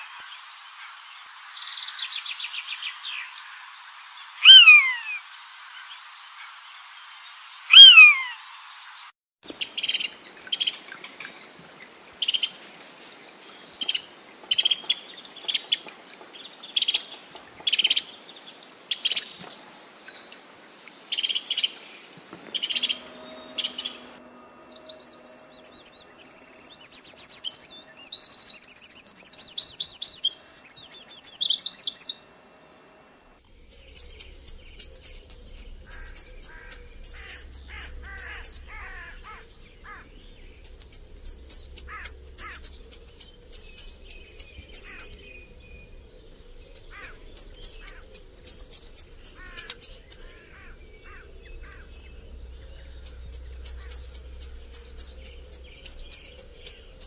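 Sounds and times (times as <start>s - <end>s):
rapid warbling birdsong: 0.0s - 5.2s, 7.3s - 8.4s, 9.6s - 32.3s, 33.1s - 57.0s
bird short chirps: 4.4s - 5.1s, 7.7s - 8.3s, 33.2s - 45.2s
high downward sweeping whistles: 22.5s - 27.6s, 31.0s - 57.0s.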